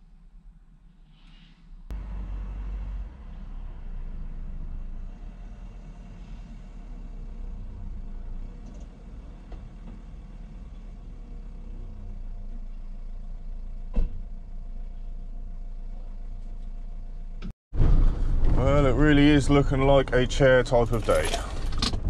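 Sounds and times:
van engine rumbling: 0:01.8 - 0:22.0.

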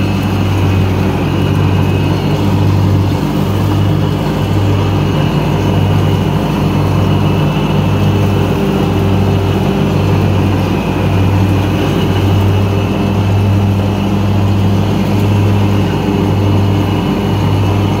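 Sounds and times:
mower engine chopping leaves: 0:00.0 - 0:18.0.

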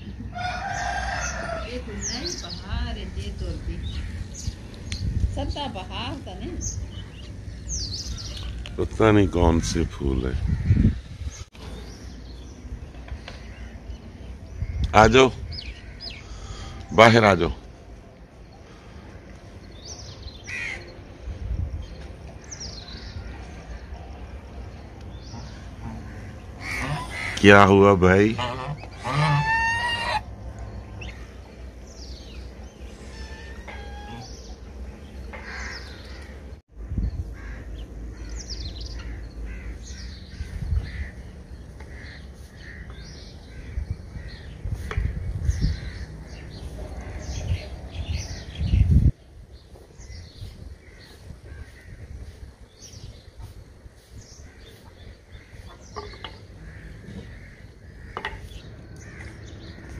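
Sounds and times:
bird calls and chirps: 0:00.0 - 0:17.0, 0:28.4 - 0:59.9
low rumbles on microphone: 0:09.8 - 0:13.6, 0:36.7 - 0:59.9
geese honking: 0:25.3 - 0:30.4, 0:32.8 - 0:36.4, 0:39.0 - 0:47.8.

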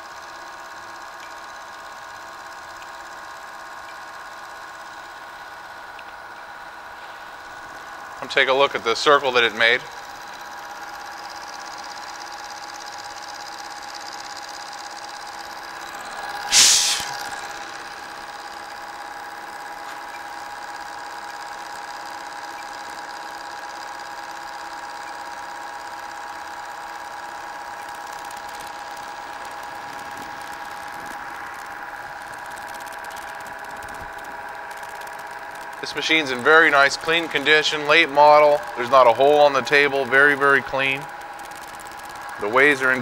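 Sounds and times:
milling machine cutting metal: 0:04.7 - 0:43.0
loud burst of noise: 0:16.2 - 0:18.5.

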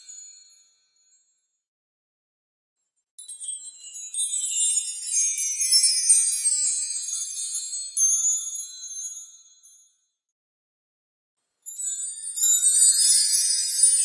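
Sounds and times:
chimes tinkling: 0:00.0 - 0:01.2, 0:03.2 - 0:10.0, 0:11.6 - 0:14.0.

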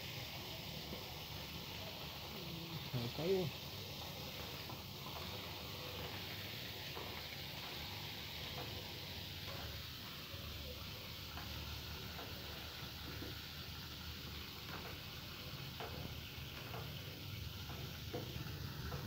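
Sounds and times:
food sizzling in hot oil: 0:00.0 - 0:19.0
oil popping: 0:10.7 - 0:19.0.

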